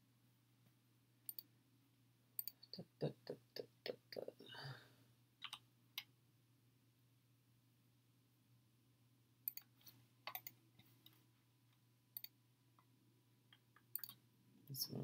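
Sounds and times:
computer mouse clicks: 0:01.3 - 0:01.5, 0:02.4 - 0:02.6, 0:05.4 - 0:06.1, 0:09.4 - 0:11.2, 0:12.2 - 0:12.4, 0:13.8 - 0:14.2.

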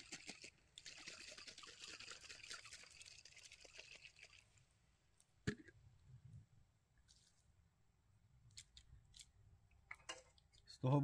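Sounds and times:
water swirled in glass bottle: 0:00.0 - 0:04.6.

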